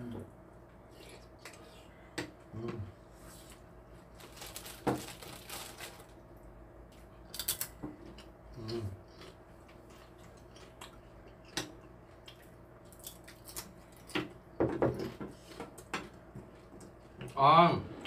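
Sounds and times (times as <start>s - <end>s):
plastic bag crinkling: 4.1s - 6.2s.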